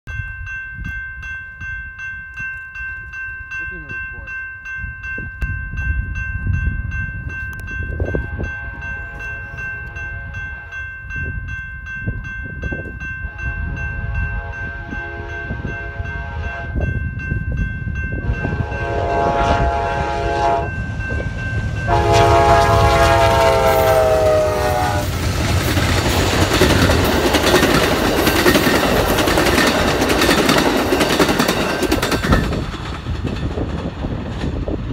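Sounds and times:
crossing bell ringing: 0:00.1 - 0:33.7
train rumble and wheel clatter: 0:03.0 - 0:34.9
train horn: 0:08.1 - 0:10.9, 0:13.2 - 0:16.9, 0:18.2 - 0:20.8, 0:21.8 - 0:25.2.

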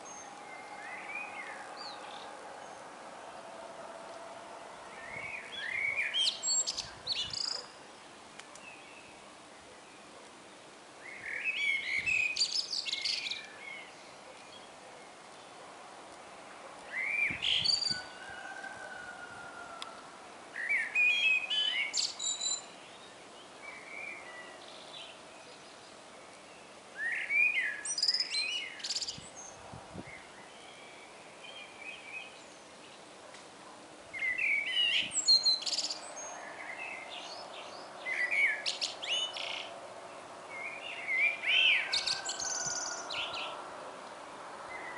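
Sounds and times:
blackbird singing: 0:00.0 - 0:02.9, 0:04.9 - 0:07.8, 0:11.0 - 0:15.1, 0:16.9 - 0:18.2, 0:20.6 - 0:32.6, 0:34.2 - 0:39.7, 0:40.5 - 0:43.6.

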